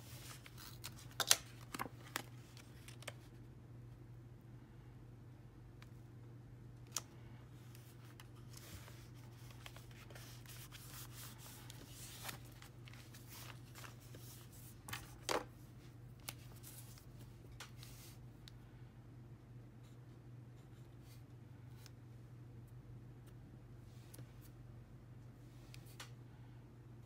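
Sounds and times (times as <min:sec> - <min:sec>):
paper rustling: 0:00.0 - 0:03.2, 0:07.7 - 0:15.5
faint steady hum: 0:00.0 - 0:27.0.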